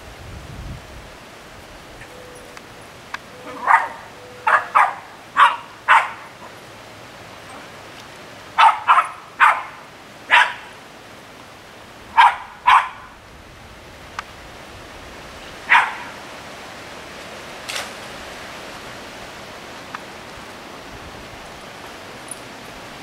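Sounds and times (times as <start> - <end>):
rain hiss: 0.0 - 23.0
small dogs barking: 3.4 - 6.6, 8.6 - 10.8, 12.1 - 13.2, 15.6 - 16.2.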